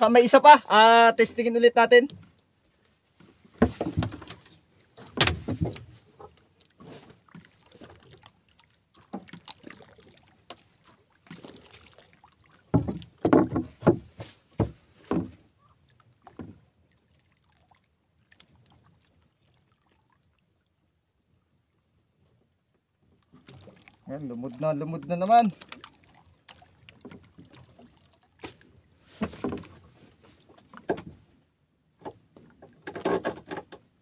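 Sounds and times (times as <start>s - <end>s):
knocks on boat hull: 12.7s - 15.4s.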